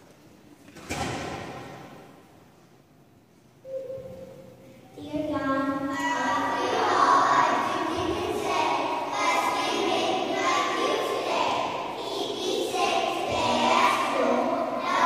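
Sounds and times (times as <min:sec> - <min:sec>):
young children singing in unison: 0:05.9 - 0:15.0.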